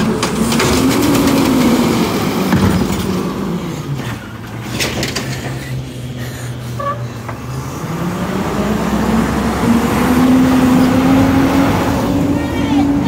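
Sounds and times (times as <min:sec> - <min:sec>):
hydraulic arm knocks and clatter: 0:00.0 - 0:03.4, 0:04.0 - 0:05.7
diesel engine drone: 0:00.0 - 0:13.0.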